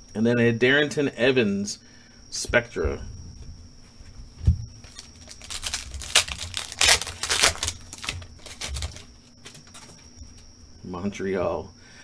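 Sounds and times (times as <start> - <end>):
foil wrapper tearing and crinkling: 4.8 - 9.1.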